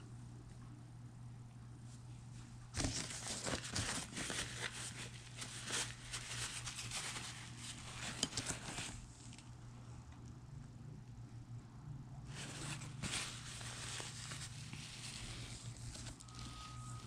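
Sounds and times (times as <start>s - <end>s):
steady low hum: 0.0s - 17.0s
rustling and crinkling: 2.3s - 9.5s, 12.3s - 17.0s.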